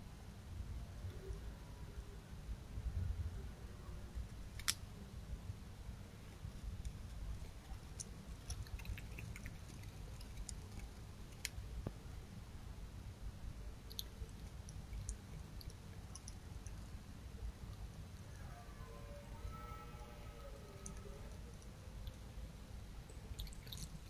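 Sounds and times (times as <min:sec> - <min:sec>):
low hum: 0:00.0 - 0:24.0
animal chewing: 0:06.6 - 0:11.6, 0:13.9 - 0:17.0, 0:23.2 - 0:24.0.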